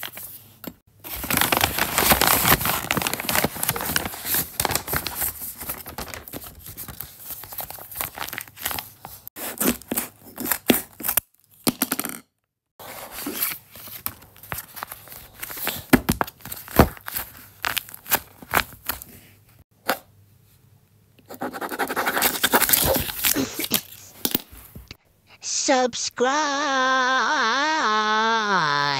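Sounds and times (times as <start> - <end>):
paper tearing and crinkling: 1.1 - 11.2, 22.0 - 24.2.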